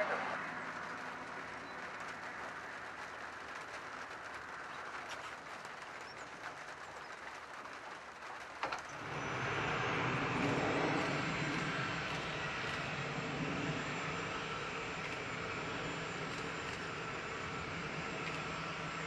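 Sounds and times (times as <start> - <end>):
distant jet engine hum: 0.0 - 19.0
deep jet engine rumble: 8.5 - 19.0.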